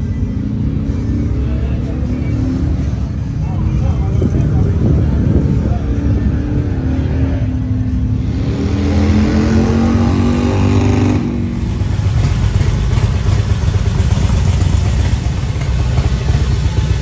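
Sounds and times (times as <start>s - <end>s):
engine revving: 5.7s - 17.0s.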